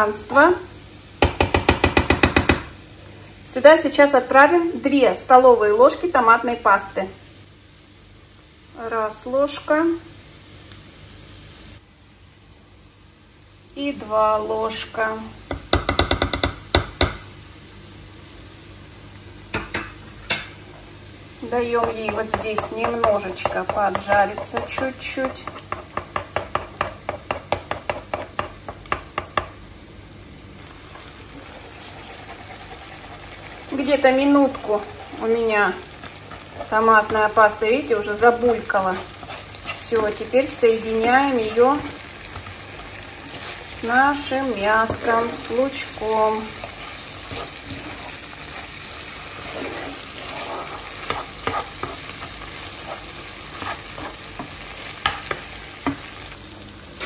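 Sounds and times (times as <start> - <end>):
tomato paste sizzling: 0.0 - 57.0
spoon tapping frying pan: 1.2 - 2.7, 15.5 - 17.3, 21.8 - 29.6, 53.6 - 56.1.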